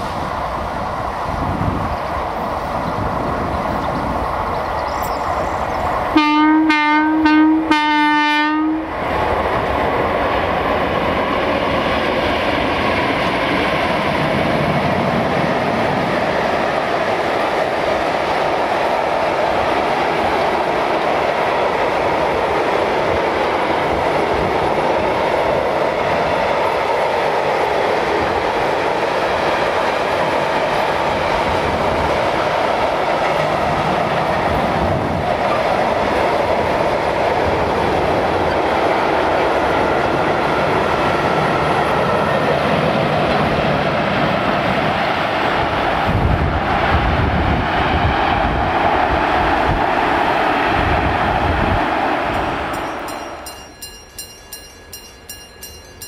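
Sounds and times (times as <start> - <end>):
locomotive horn blasts: 6.2 - 8.9.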